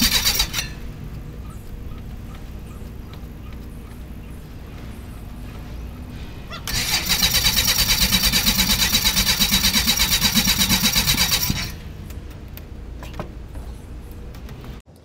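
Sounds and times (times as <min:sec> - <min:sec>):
aircraft engine cranking on starter: 0:00.0 - 0:00.8, 0:06.7 - 0:11.8.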